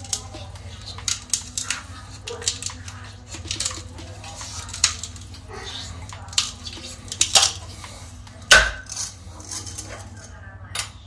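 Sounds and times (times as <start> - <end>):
razor blade scraping plastic: 0.0 - 10.3.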